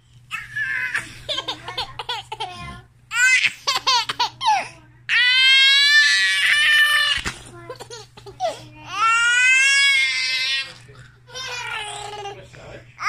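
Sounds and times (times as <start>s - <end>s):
toddler laughing: 0.6s - 4.7s.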